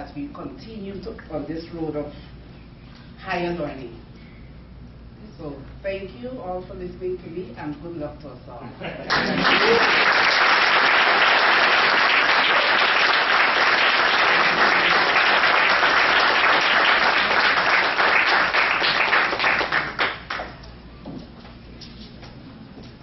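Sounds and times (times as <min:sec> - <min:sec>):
audience applauding: 0:09.1 - 0:20.6.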